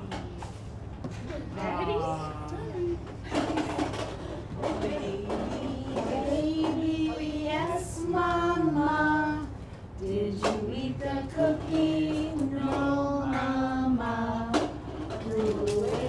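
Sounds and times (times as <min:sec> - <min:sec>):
woman singing unaccompanied: 0:04.6 - 0:16.0.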